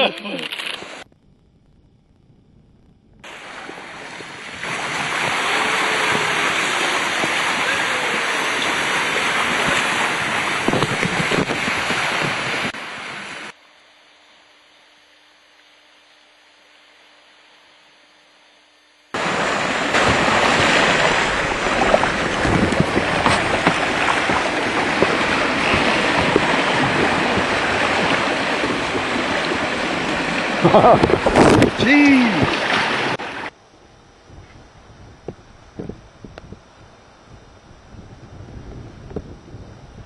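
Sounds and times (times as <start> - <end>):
wind buffeting microphone: 1.2 - 12.8, 19.2 - 33.2, 34.1 - 40.0
water rushing along hull: 3.2 - 13.5, 19.2 - 33.6.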